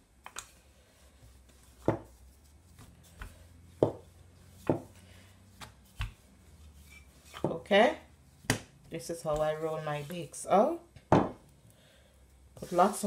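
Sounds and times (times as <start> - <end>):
rolling pin knocking on countertop: 1.8 - 2.1, 3.8 - 4.9, 11.1 - 11.4.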